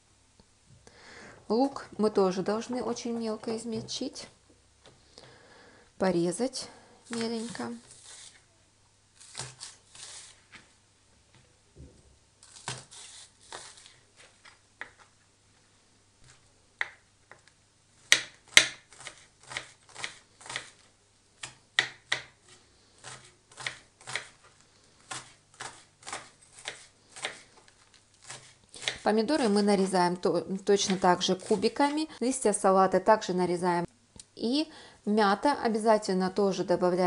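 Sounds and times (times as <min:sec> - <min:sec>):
knife chopping on cutting board: 0:18.1 - 0:20.8, 0:21.4 - 0:22.4, 0:23.0 - 0:24.4, 0:25.1 - 0:27.4, 0:28.2 - 0:29.0.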